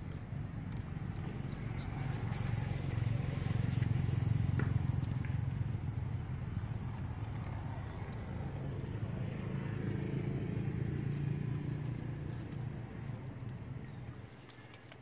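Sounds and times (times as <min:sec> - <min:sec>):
vehicle engine passing by: 0:01.2 - 0:13.9.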